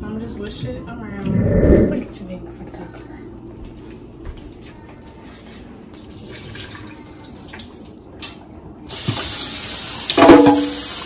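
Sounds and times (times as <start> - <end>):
tap water running into sink: 6.1 - 11.0.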